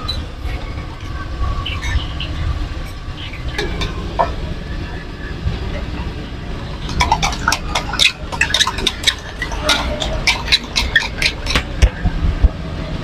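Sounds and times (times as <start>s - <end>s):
containers clicking and tapping: 6.6s - 12.2s.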